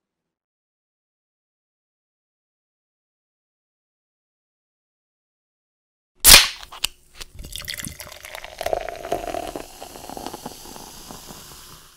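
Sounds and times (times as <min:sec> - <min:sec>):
loud sharp crack: 0:06.2 - 0:06.8.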